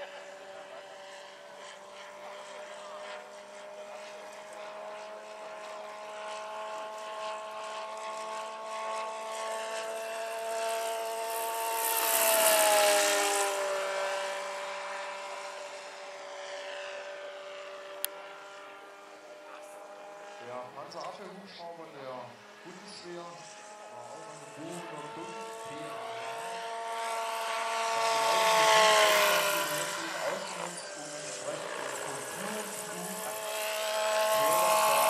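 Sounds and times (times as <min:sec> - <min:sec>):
model helicopter whine: 0:00.0 - 0:35.0.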